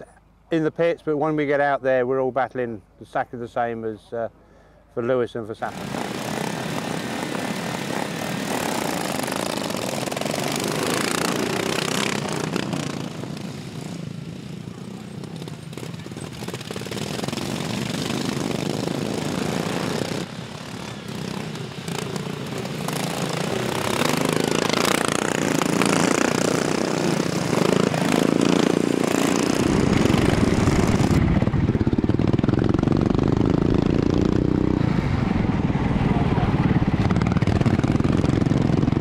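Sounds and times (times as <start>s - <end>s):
racing lawnmower engines: 4.5s - 39.0s
mower engine close up: 5.6s - 34.6s.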